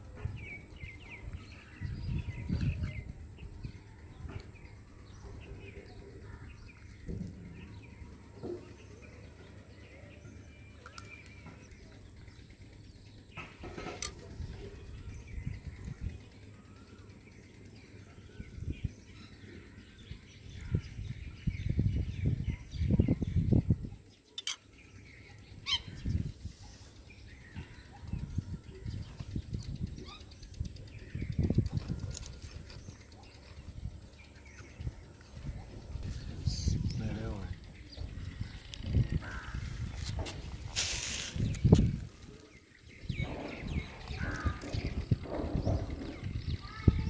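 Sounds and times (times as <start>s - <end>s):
birds chirping faintly: 0.0s - 47.0s.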